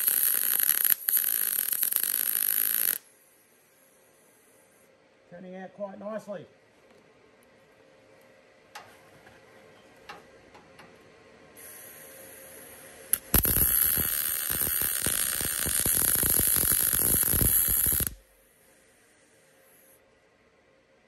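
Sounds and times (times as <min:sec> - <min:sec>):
welding arc crackling: 0:00.0 - 0:03.0, 0:11.6 - 0:18.3.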